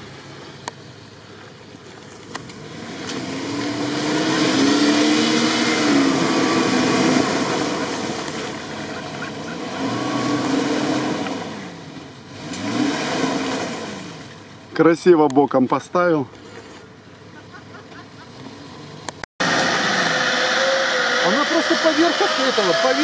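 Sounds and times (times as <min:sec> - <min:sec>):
engine revving: 0:02.3 - 0:14.4, 0:18.3 - 0:23.0
tyres churning and splashing mud: 0:03.2 - 0:14.9.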